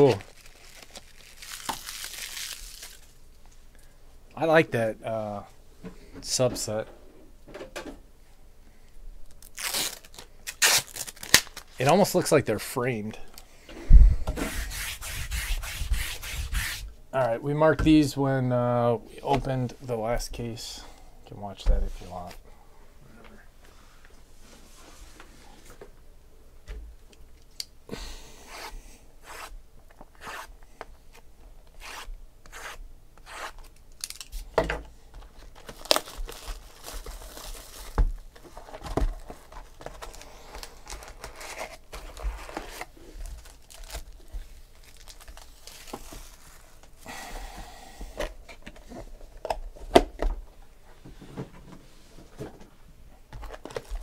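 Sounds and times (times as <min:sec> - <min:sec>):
plastic wrapping tearing and crinkling: 0:00.0 - 0:03.2, 0:09.3 - 0:11.9, 0:33.6 - 0:34.5, 0:35.3 - 0:47.0, 0:53.4 - 0:54.0.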